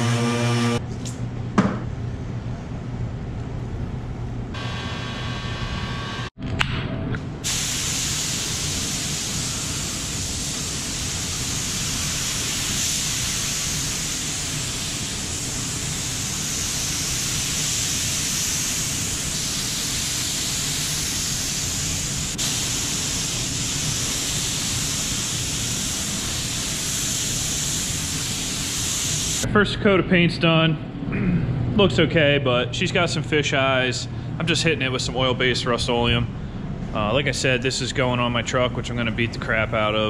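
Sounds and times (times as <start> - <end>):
paint spray gun hissing: 7.4 - 29.4.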